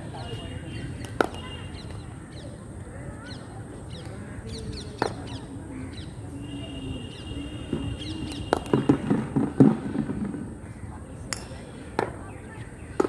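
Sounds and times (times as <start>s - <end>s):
birds chirping: 0.0s - 9.1s, 9.8s - 13.0s
cricket bat hitting ball: 1.0s - 1.5s, 8.3s - 10.2s.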